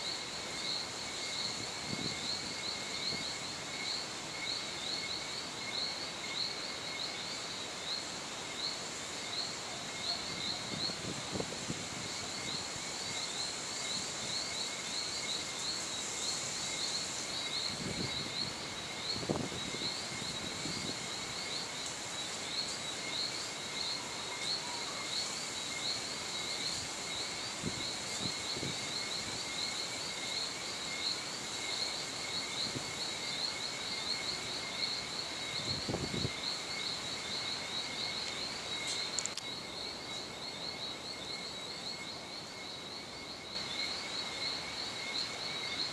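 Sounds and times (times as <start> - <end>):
insects chirring: 0.0 - 45.9.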